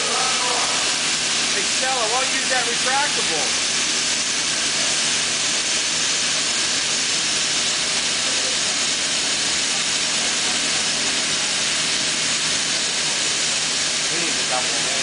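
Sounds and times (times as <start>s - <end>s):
steady rushing hiss: 0.0s - 15.0s.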